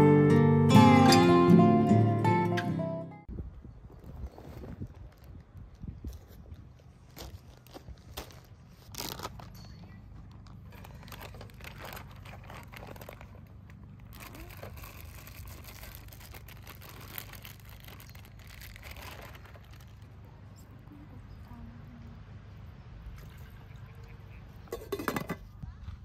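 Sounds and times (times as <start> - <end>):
plastic bags crinkling: 7.0 - 20.3.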